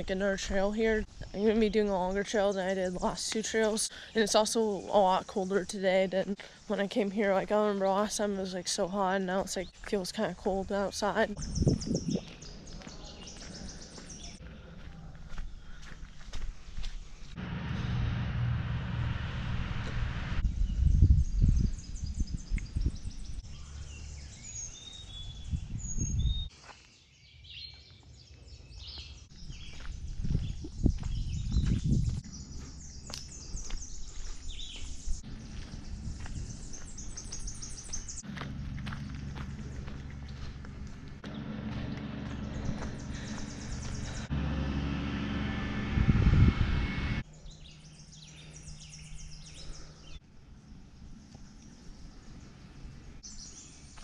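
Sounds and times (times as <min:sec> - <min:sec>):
songbirds chirping and whistling: 0:00.0 - 0:17.4, 0:20.4 - 0:44.3, 0:47.2 - 0:54.0
low rumbling noise: 0:17.1 - 0:24.3, 0:34.8 - 0:53.2
loud low burst: 0:17.3 - 0:21.3, 0:38.2 - 0:47.2.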